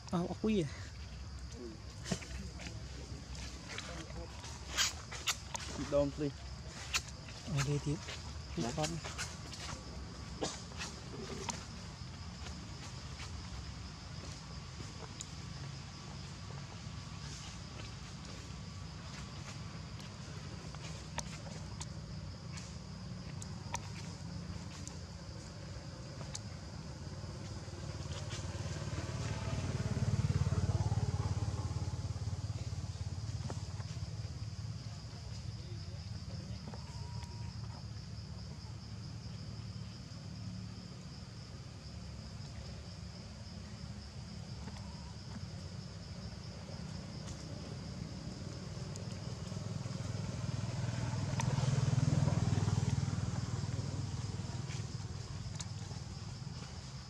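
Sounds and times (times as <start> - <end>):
vehicle engine drone: 7.2 - 57.0
motorcycle engine passing: 25.6 - 34.8, 46.0 - 57.0.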